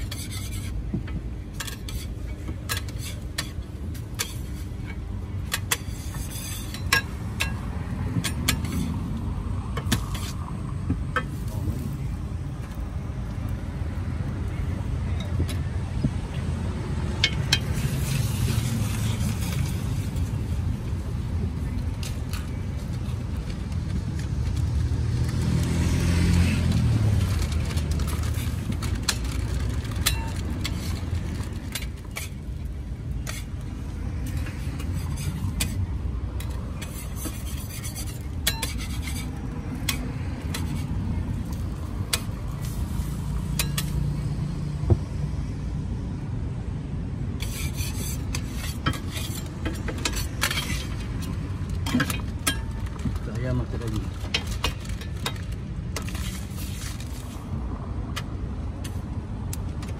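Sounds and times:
spatula scraping on griddle: 0:00.0 - 0:00.8, 0:01.5 - 0:07.6, 0:08.2 - 0:09.2, 0:09.8 - 0:10.5, 0:17.4 - 0:20.4, 0:30.0 - 0:44.0, 0:47.4 - 0:52.8, 0:56.0 - 0:57.4.

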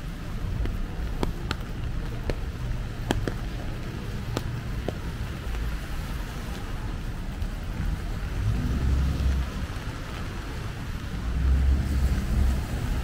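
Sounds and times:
wind rumble on microphone: 0:00.0 - 0:13.0
sharp taps: 0:00.6 - 0:05.6
rain hiss: 0:03.9 - 0:13.0.

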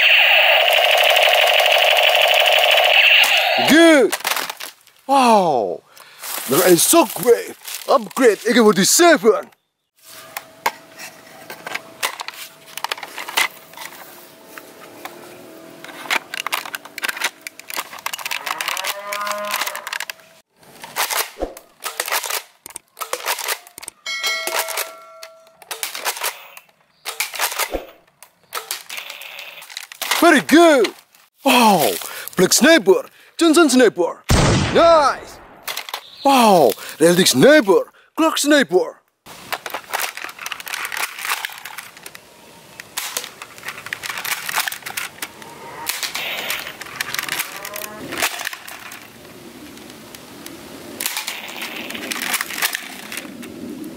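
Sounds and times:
toy dart blaster pumping and firing: 0:00.0 - 0:03.7
plastic clicks and rattles of toy gun: 0:15.8 - 0:20.2, 0:20.9 - 0:24.0, 0:25.6 - 0:30.2, 0:39.5 - 0:42.2, 0:42.8 - 0:49.1, 0:51.0 - 0:53.5
ringing ding: 0:24.1 - 0:25.6.

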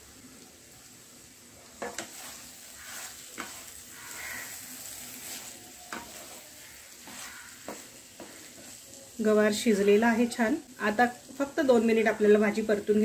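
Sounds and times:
light sizzle: 0:00.0 - 0:13.0
spatula stirring beans: 0:01.3 - 0:11.6.

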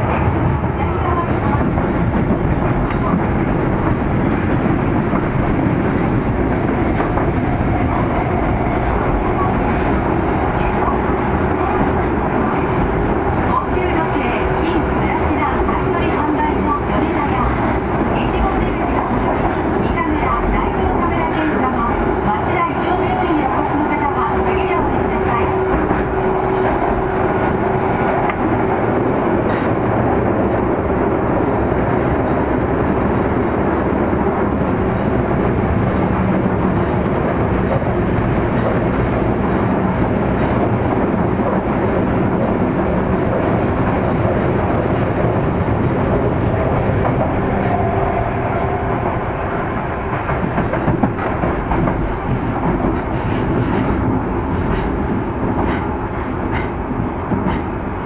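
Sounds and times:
train wheels rumbling on rail: 0:00.0 - 0:58.0
rail-joint clicks: 0:01.2 - 0:06.2, 0:22.5 - 0:30.0, 0:50.1 - 0:58.0.

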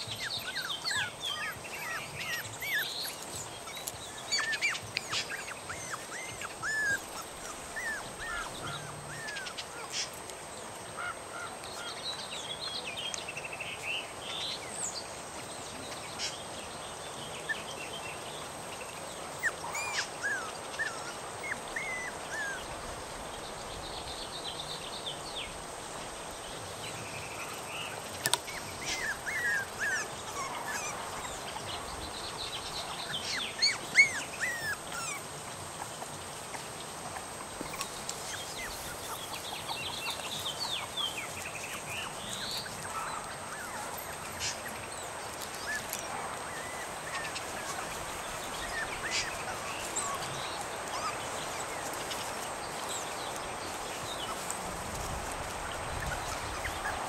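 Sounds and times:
puppies whining: 0:00.0 - 0:10.1, 0:19.3 - 0:22.8, 0:28.2 - 0:31.6, 0:33.2 - 0:36.0, 0:42.6 - 0:51.7.

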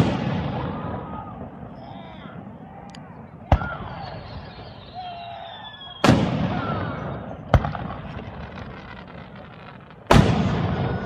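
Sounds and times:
sharp firework crack: 0:00.0 - 0:01.3, 0:05.9 - 0:11.0
firework bang with echo: 0:06.0 - 0:11.0.

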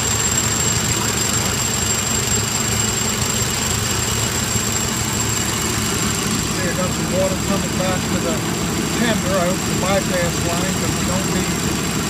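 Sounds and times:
steam engine mechanical running: 0:00.0 - 0:12.0.

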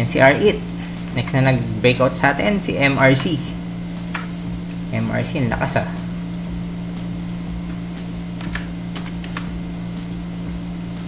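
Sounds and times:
low electrical hum: 0:00.0 - 0:11.0
keyboard keys clicking: 0:03.9 - 0:04.4, 0:05.6 - 0:11.0.

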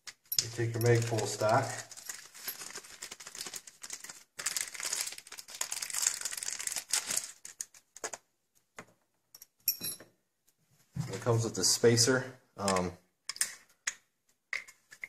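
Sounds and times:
plastic packaging crinkling: 0:00.5 - 0:08.2.

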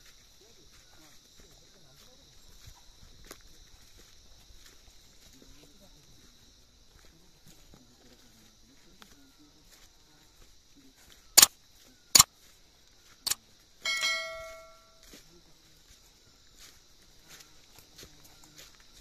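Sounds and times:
ringing metallic clang: 0:13.8 - 0:15.0.

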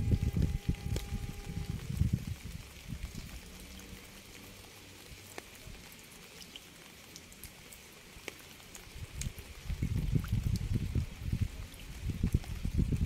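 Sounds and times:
low rumble: 0:00.0 - 0:03.6
raindrops ticking on a surface: 0:00.0 - 0:13.0
steady rain hiss: 0:00.0 - 0:13.0.

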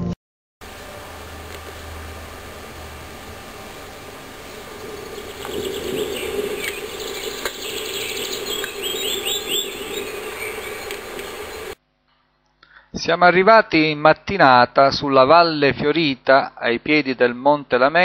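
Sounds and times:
steady hiss and hum: 0:00.6 - 0:11.8
birds chirping and singing: 0:03.7 - 0:11.8.

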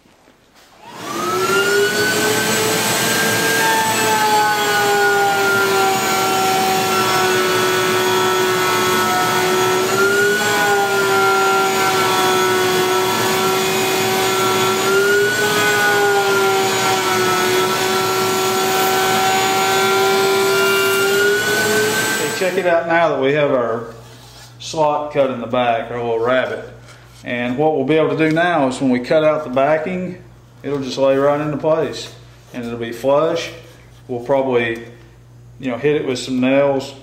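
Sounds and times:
router high whine: 0:00.8 - 0:22.8.

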